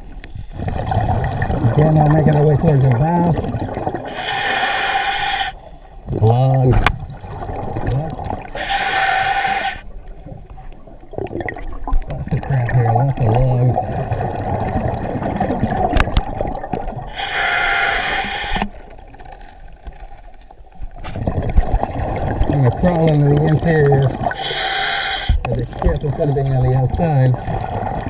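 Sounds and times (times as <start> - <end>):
low water noise: 0.0 - 28.0
exhaled bubbles rushing: 0.5 - 4.2, 6.1 - 8.6, 11.1 - 17.2, 21.0 - 24.6, 25.3 - 28.0
diver breathing underwater: 4.0 - 5.9, 8.4 - 9.9, 17.1 - 18.8, 24.2 - 25.4.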